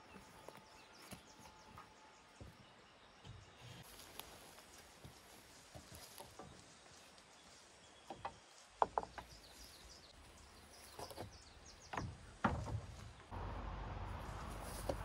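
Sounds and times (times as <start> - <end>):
wooden boards clattering: 11.9 - 13.3.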